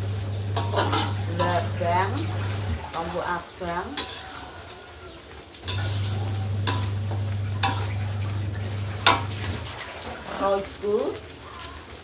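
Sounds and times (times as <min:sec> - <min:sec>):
sauce sizzling: 0:00.0 - 0:12.0
spoon stirring in a wok: 0:00.2 - 0:12.0
spoon knocking on pan: 0:05.7 - 0:08.0, 0:09.0 - 0:09.4.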